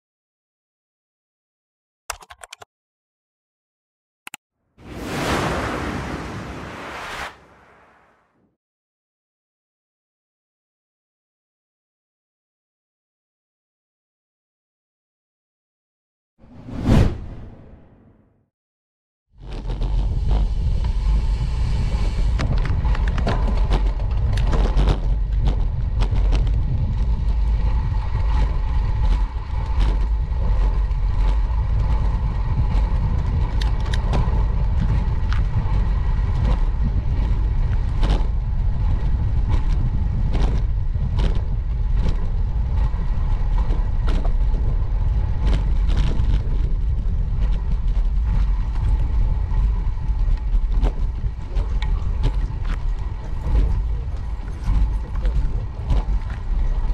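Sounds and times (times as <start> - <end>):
bicycle clicks and rattles: 2.1 - 2.6, 22.4 - 56.9
wind and road noise: 4.8 - 8.4, 16.4 - 18.1, 19.4 - 56.9.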